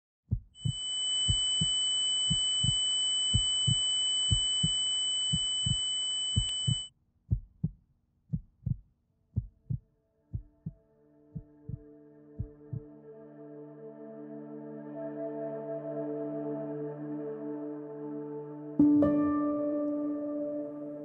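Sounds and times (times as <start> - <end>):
heartbeat thumps: 0.3 - 8.8, 9.4 - 10.8, 11.4 - 11.8, 12.4 - 12.9
faint sustained drone: 0.6 - 6.9
high-pitched ringing tone: 0.6 - 6.9.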